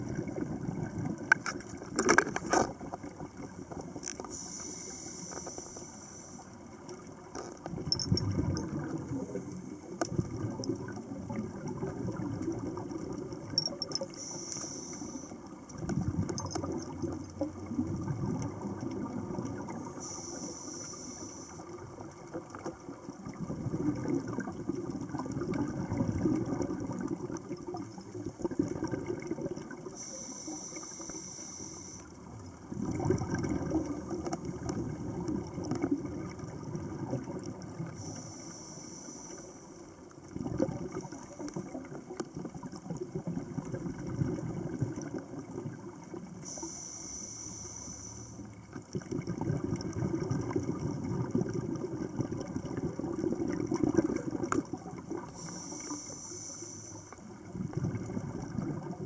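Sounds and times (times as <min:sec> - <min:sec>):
exhaled air bubbling underwater: 0:00.0 - 0:59.0
regulator inhalation hiss: 0:04.3 - 0:06.6, 0:14.1 - 0:15.4, 0:20.0 - 0:21.8, 0:29.9 - 0:32.2, 0:38.0 - 0:39.9, 0:46.4 - 0:48.5, 0:55.2 - 0:57.2.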